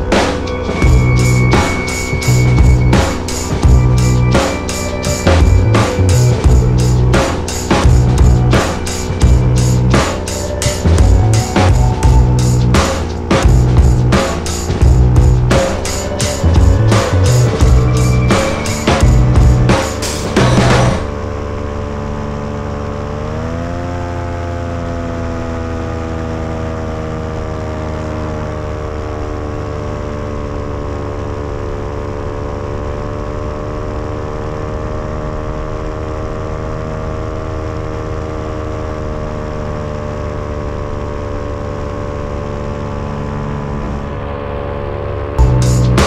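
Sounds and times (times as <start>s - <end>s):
paramotor engine running: 0.0s - 46.0s.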